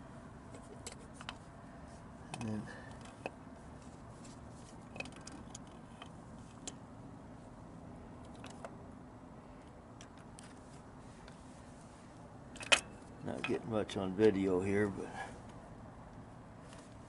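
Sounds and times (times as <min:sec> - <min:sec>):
low steady background hum: 0:00.0 - 0:17.0.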